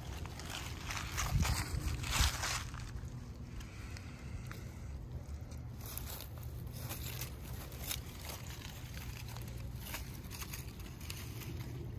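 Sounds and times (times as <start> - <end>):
dry leaves rustling: 0.0 - 11.9
wind rumble on microphone: 0.5 - 3.5.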